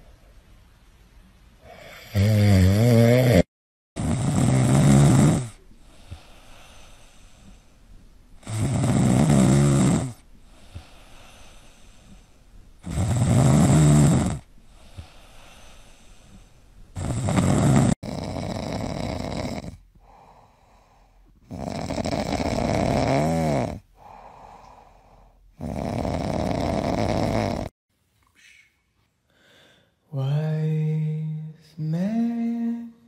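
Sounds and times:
dogs snoring: 1.6s - 7.6s, 8.4s - 16.2s, 17.0s - 20.4s, 21.4s - 24.9s, 25.6s - 27.7s.

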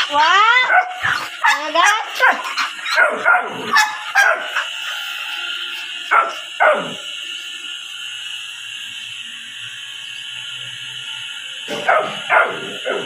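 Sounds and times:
dog barking: 0.6s - 4.8s, 6.1s - 7.0s, 11.7s - 13.0s.

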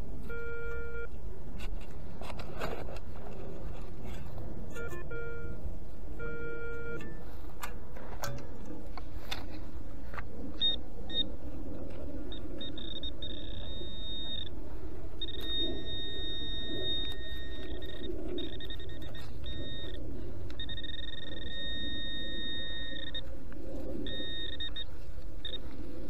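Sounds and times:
low steady rumble: 0.0s - 26.0s
metal detector high electronic tones: 4.7s - 5.6s, 6.2s - 7.2s, 12.3s - 14.5s, 15.2s - 23.3s, 23.9s - 25.7s.

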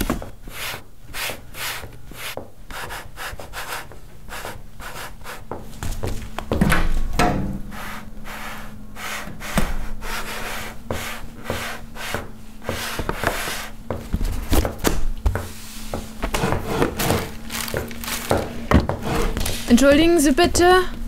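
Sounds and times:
faint steady hum: 0.0s - 21.0s
drawers sliding and knocking: 15.4s - 20.1s.

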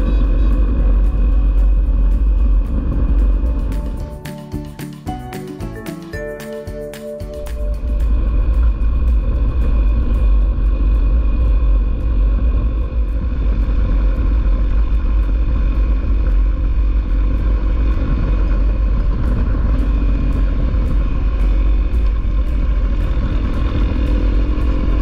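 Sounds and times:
wind rumble on microphone: 0.0s - 4.2s, 7.5s - 25.0s
motorcycle engine running: 0.0s - 25.0s.

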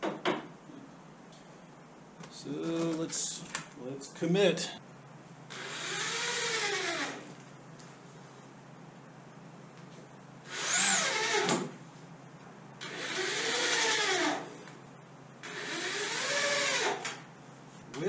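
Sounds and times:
electric drill driving screws: 5.5s - 7.2s, 10.5s - 11.7s, 12.8s - 14.6s, 15.4s - 17.2s.

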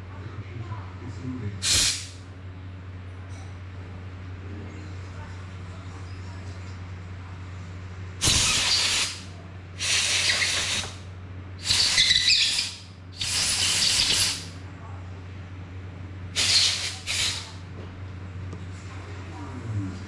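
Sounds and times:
aerosol spray hissing: 1.6s - 2.1s, 8.2s - 9.2s, 9.8s - 11.0s, 11.6s - 14.5s, 16.4s - 17.6s.

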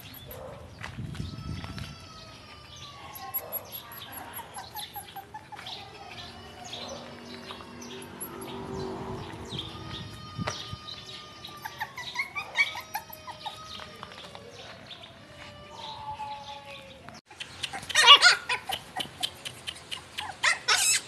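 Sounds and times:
puppies chirping and whining: 0.0s - 0.7s, 1.9s - 14.4s, 17.3s - 21.0s.

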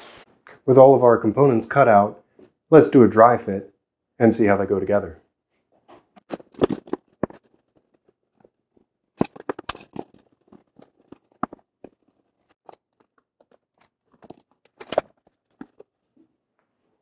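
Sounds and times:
plywood pieces knocking together: 6.2s - 8.5s, 9.2s - 15.9s.

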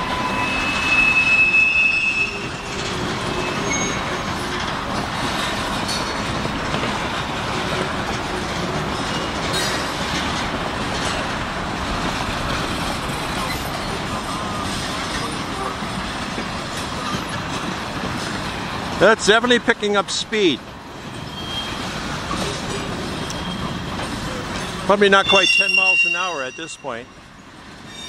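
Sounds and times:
train wheels squealing: 0.0s - 4.5s, 13.4s - 15.7s, 21.1s - 27.1s, 27.8s - 28.0s
railcars rumbling: 0.0s - 28.0s.

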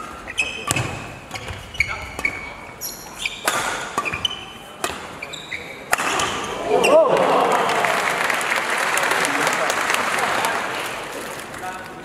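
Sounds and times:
shoes squeaking on court floor: 0.0s - 7.0s
rackets hitting shuttlecock: 3.3s - 5.2s, 5.8s - 6.7s.

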